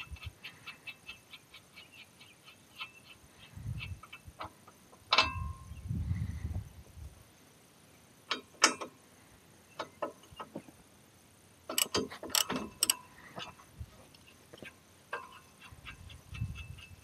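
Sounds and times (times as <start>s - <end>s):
ratchet clicking: 11.7s - 13.0s
metal clinks of socket and nuts: 11.7s - 13.1s.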